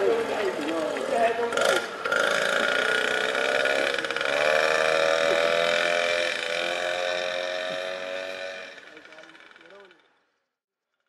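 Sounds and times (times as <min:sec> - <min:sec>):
moped engine buzzing: 0:01.5 - 0:10.5.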